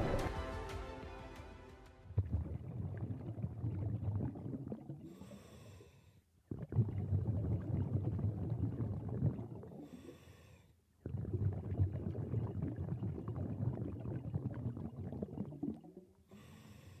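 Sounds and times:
exhaled bubbles underwater: 2.2 - 5.4, 6.5 - 10.0, 11.0 - 16.2.

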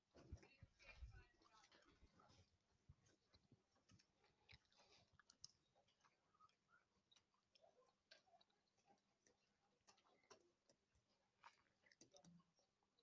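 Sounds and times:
faint small clicks and ticks: 3.0 - 13.0.

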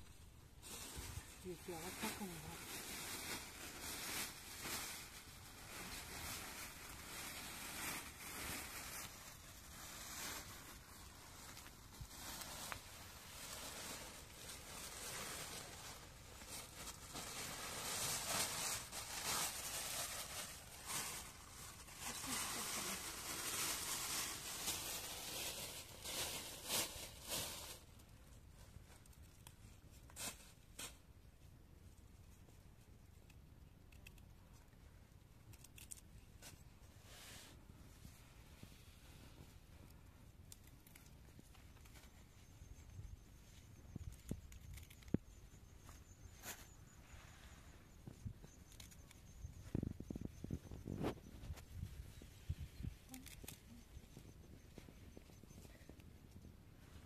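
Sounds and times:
lettuce leaves rustling: 0.6 - 28.0, 43.7 - 55.5.

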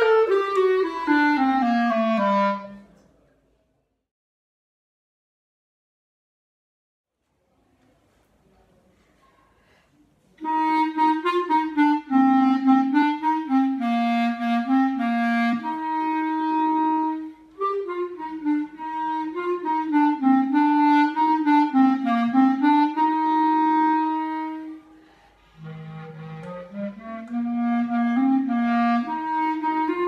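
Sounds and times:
solo clarinet melody: 0.0 - 2.9, 10.4 - 30.0.

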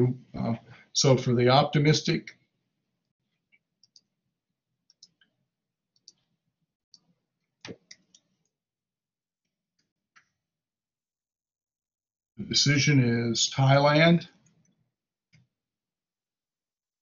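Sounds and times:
faint small clicks: 3.5 - 4.1, 4.9 - 5.4, 6.0 - 6.3.

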